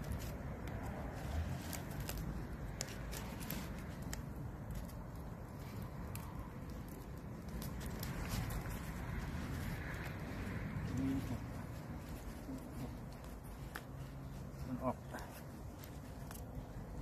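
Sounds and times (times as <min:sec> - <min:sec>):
banana leaves crinkling: 0:00.0 - 0:17.0.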